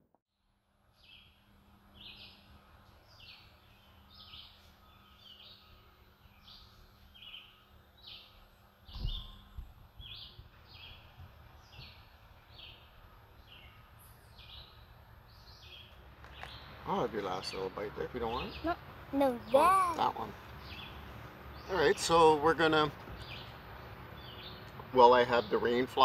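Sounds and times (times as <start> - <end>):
low thump: 8.9 - 9.8.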